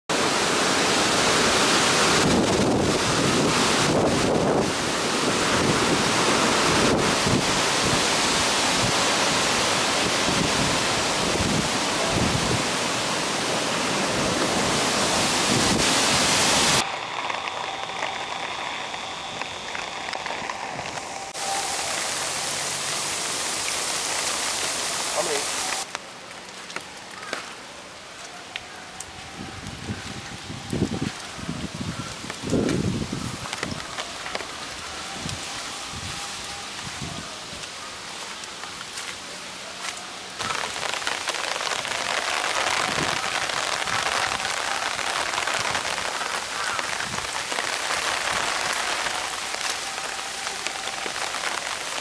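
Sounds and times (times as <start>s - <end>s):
heavy rain: 0.1s - 52.0s
strong wind gusts on microphone: 1.6s - 13.0s, 14.1s - 16.8s, 29.2s - 33.9s, 42.7s - 44.6s.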